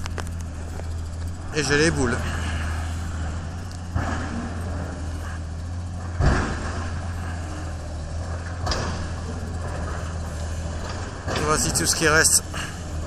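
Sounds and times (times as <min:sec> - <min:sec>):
diesel engine rumbling: 0:00.0 - 0:13.0
demolition rubble crashing: 0:03.4 - 0:13.0.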